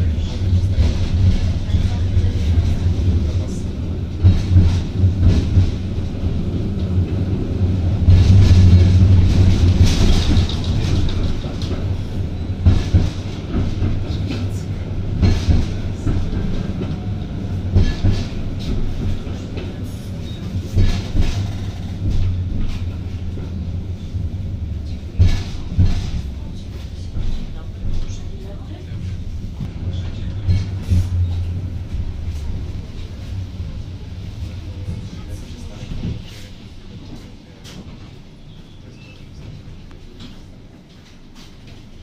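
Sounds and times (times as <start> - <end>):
wheels knocking and rattling: 0.0 - 23.9
tram running gear drone: 0.0 - 42.0.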